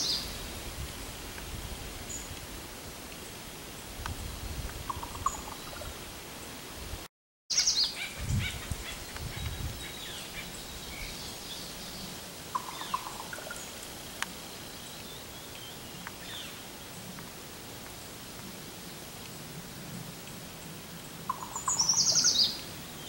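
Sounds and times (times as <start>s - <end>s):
low bird calls: 4.9s - 6.0s, 7.5s - 13.8s, 21.3s - 22.7s
songbirds chirping: 7.5s - 17.2s, 20.3s - 23.0s.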